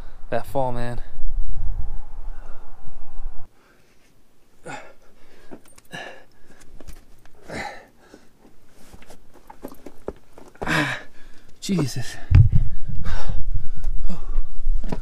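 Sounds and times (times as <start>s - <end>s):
man breathing hard: 4.6s - 6.8s, 7.4s - 8.5s, 10.6s - 11.6s, 12.6s - 14.8s
hands and shoes scuffing rock: 8.1s - 10.7s.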